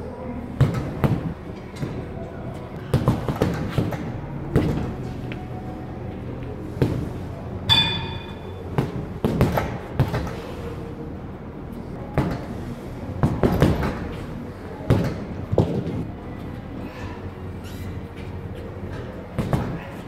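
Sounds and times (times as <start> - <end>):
short metallic ring: 7.7 - 8.5.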